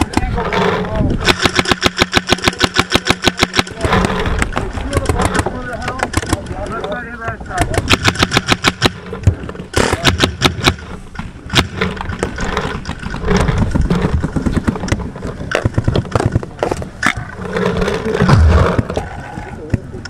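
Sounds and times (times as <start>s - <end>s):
low rumble: 18.2s - 19.5s.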